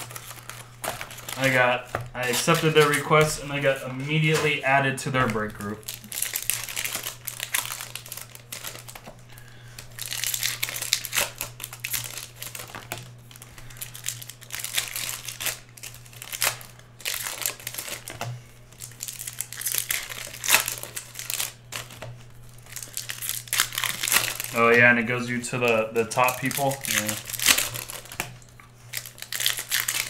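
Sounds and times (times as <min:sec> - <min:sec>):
foil wrappers crinkling and tearing: 0:00.0 - 0:30.0.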